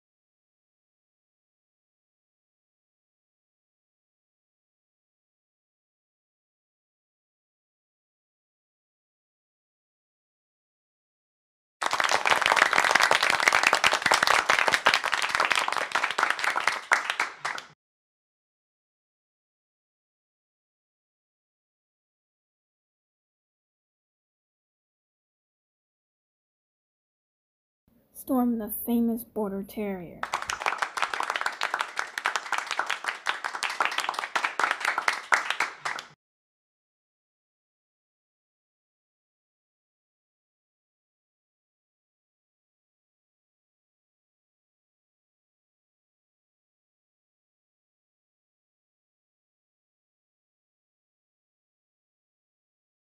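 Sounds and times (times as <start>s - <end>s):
audience applauding: 11.8s - 17.8s, 30.2s - 36.2s.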